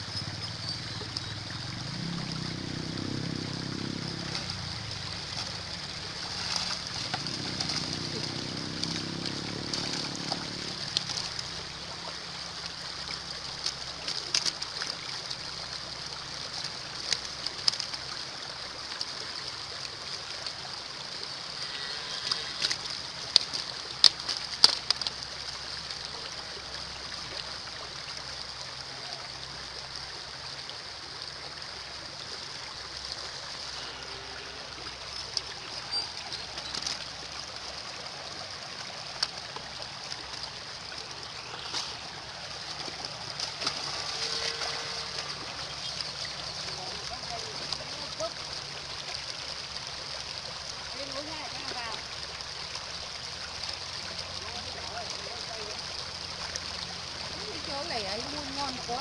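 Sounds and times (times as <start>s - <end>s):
muddy water running over stones: 0.0s - 59.0s
sharp splashes and knocks: 1.4s - 11.9s, 39.0s - 46.6s.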